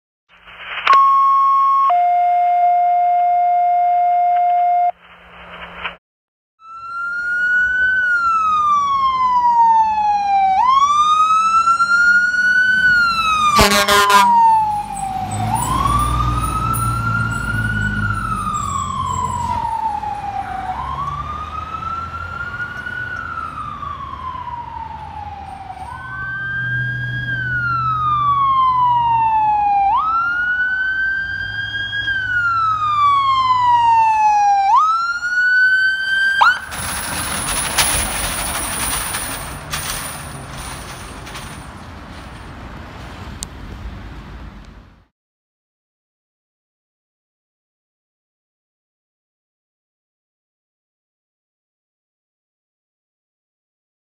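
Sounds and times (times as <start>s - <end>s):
two-tone radio alert: 0.7s - 5.0s
sirens wailing: 0.8s - 5.0s, 6.6s - 42.5s
air horn blast: 13.5s - 14.5s
diesel engine rumble: 35.5s - 45.1s.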